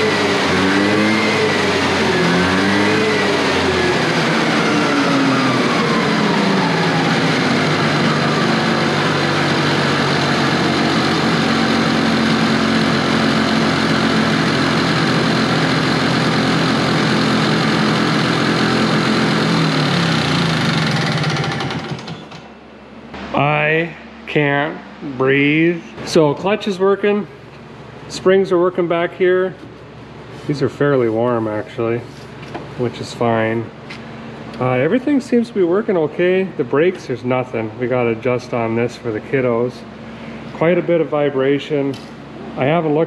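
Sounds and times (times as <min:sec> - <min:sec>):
snowmobile two-stroke engine running: 0:00.0 - 0:22.4.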